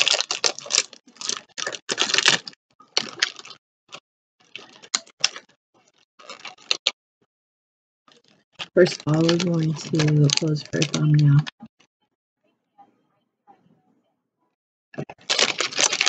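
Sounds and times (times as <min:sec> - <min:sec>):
plastic bag crinkling: 0:00.0 - 0:03.6, 0:04.4 - 0:06.9, 0:08.2 - 0:11.6, 0:15.0 - 0:16.0.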